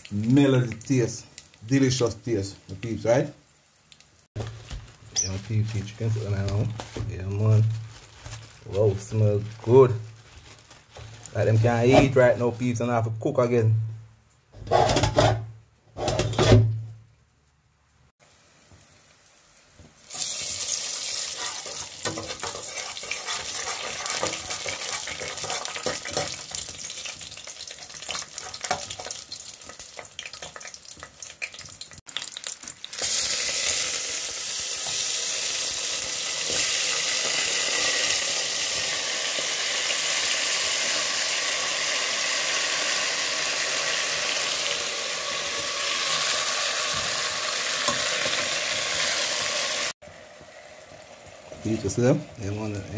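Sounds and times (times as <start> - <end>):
food sizzling and crackling in pot: 0.0 - 12.9, 18.2 - 52.9
utensil stirring in pot: 20.2 - 31.1.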